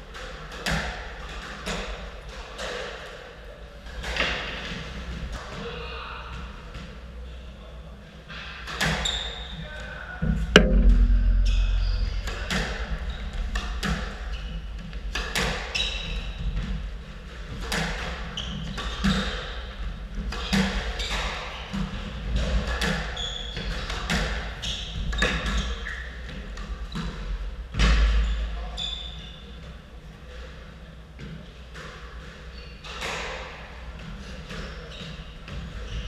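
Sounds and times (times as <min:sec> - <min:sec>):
squash ball smacking rackets and walls: 0:10.2 - 0:28.3.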